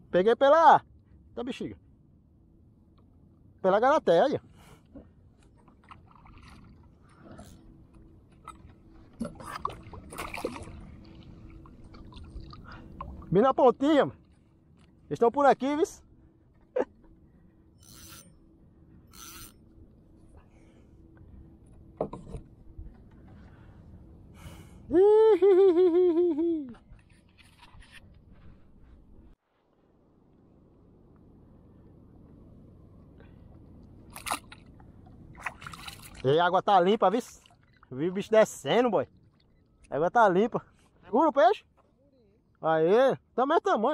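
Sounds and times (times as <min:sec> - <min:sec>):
water lapping against kayak: 0:04.5 - 0:13.4, 0:33.4 - 0:36.4, 0:37.0 - 0:39.9
fish splashing: 0:09.2 - 0:12.7
man's wavering hum: 0:24.7 - 0:26.9.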